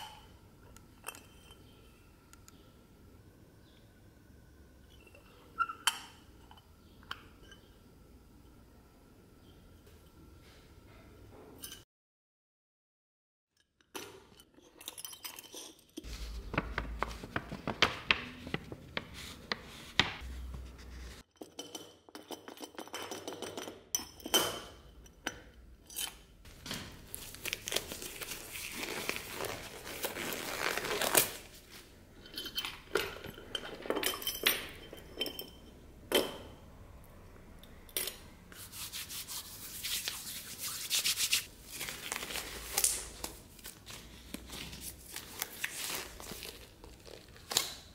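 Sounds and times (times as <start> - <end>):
nitrile gloves stretching and snapping: 38.9 - 47.9.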